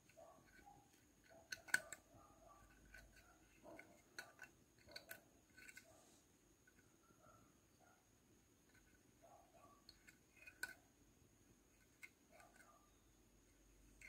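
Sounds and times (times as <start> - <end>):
metal hook clicking on pegs: 0.0 - 2.0, 2.6 - 5.9.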